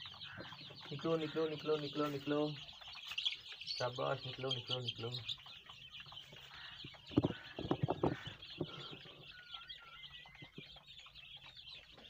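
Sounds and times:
chicks peeping: 0.0s - 12.0s
loud thumps: 7.0s - 8.8s.

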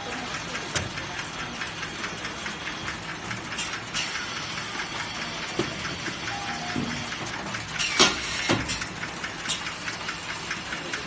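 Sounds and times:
welding machine rattling and ticking: 0.0s - 11.0s.

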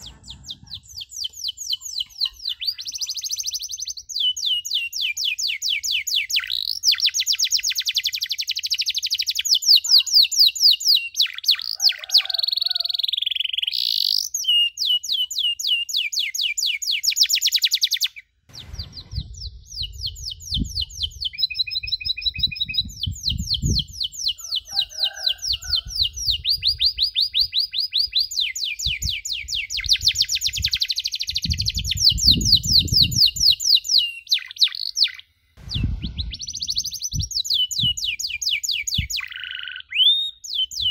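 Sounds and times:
low thumps and rumble: 0.0s - 1.0s, 18.5s - 23.9s, 35.6s - 38.0s
canary singing: 0.0s - 40.9s.

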